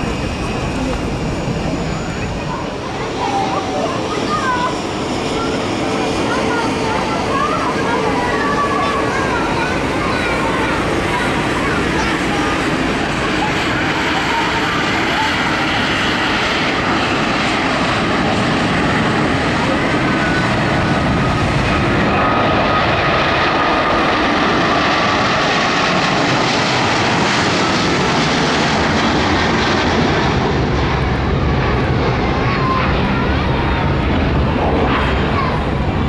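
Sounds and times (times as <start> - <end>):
jet engines at takeoff thrust: 0.0 - 36.0.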